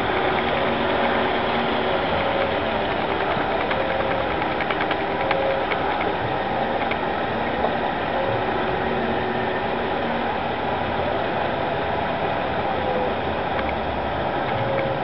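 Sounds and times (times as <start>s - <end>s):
light irregular clicks: 0.0s - 7.0s, 13.5s - 13.8s
machine running with hum: 0.0s - 15.0s.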